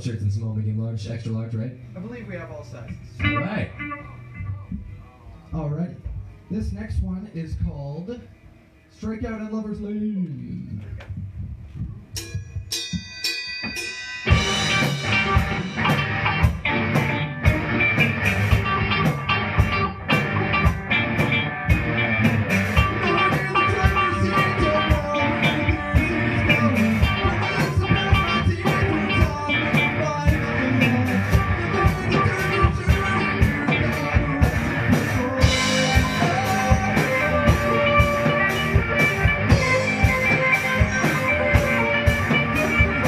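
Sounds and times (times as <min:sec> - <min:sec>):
live rock band playing: 0:02.1 - 0:05.0, 0:13.3 - 0:43.0.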